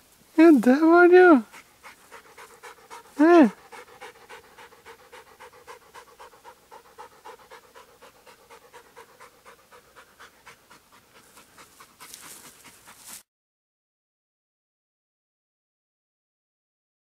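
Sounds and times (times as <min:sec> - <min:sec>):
dog panting rapidly: 0:00.7 - 0:13.2
rustling: 0:11.1 - 0:13.2.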